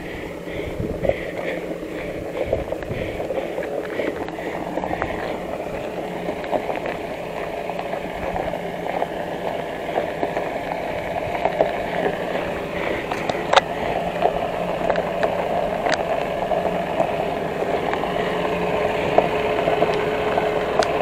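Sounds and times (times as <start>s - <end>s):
diesel engine running: 0.0s - 21.0s
tires crunching gravel: 0.0s - 21.0s.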